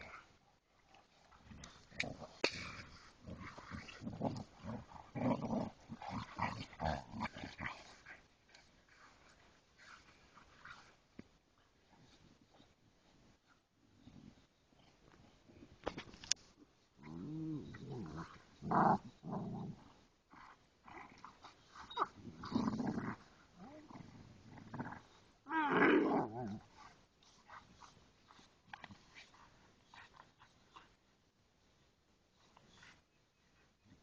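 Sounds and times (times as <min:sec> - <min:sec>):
dogs growling: 0:01.5 - 0:08.0.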